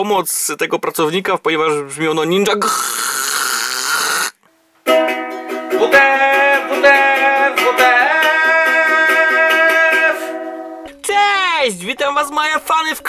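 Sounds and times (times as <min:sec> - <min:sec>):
ukulele strumming: 0:04.8 - 0:13.0
man singing a jingle: 0:05.7 - 0:13.0.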